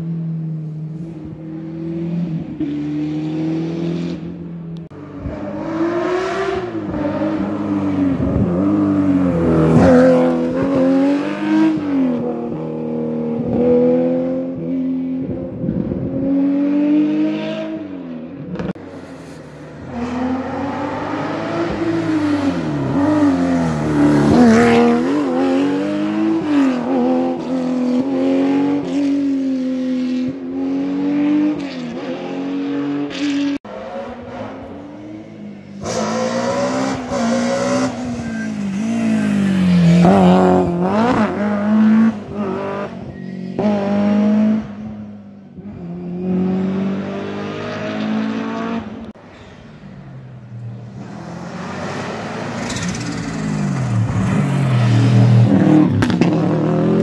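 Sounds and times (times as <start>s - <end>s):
rally car engines revving: 0.0s - 49.6s, 50.2s - 57.0s.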